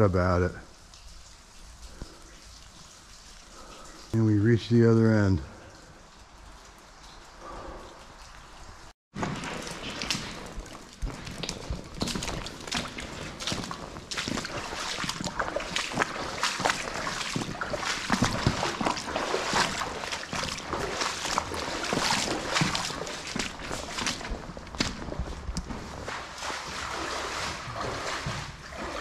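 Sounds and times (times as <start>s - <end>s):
footsteps splashing through water: 6.2s - 29.0s.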